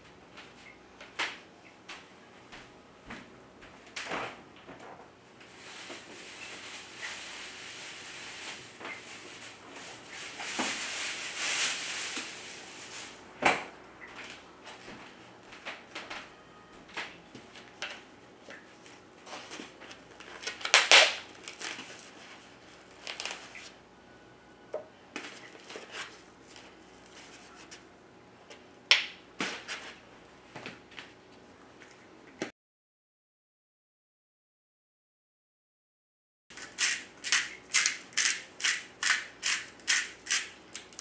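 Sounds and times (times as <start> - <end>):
rustling: 5.4 - 13.2.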